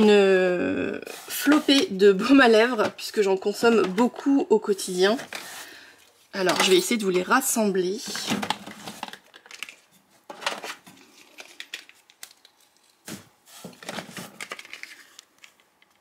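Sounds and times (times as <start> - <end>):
packaging rustling: 8.2 - 16.0.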